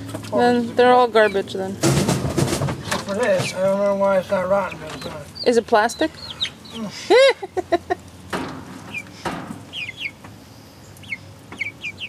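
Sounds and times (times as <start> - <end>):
hens clucking and calling: 2.8 - 12.0
high falling peeps: 8.9 - 10.2.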